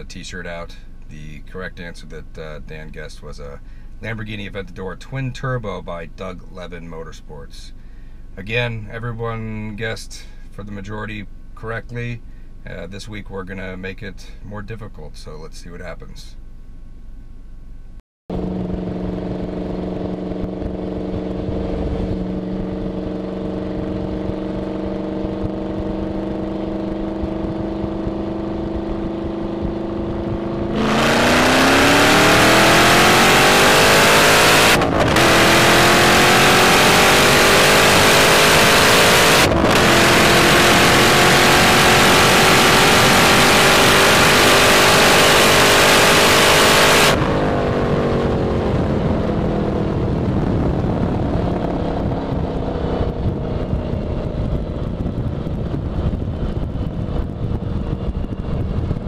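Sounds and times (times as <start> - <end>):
car engine idling and revving: 18.3 - 59.0.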